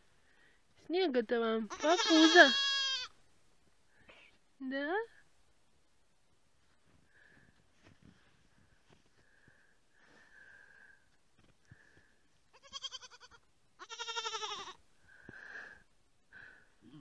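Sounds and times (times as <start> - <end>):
goat kid bleating: 1.7 - 3.2, 12.5 - 14.8.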